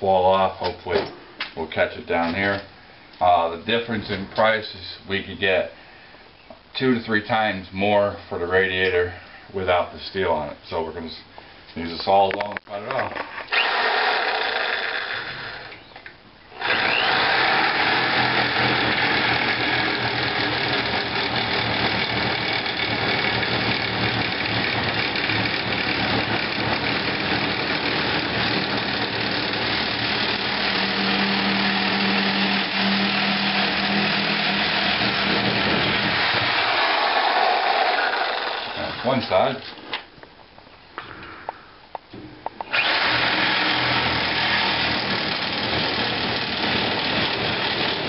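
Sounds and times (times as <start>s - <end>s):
reciprocating saw cutting metal: 16.6s - 39.3s, 42.7s - 48.0s.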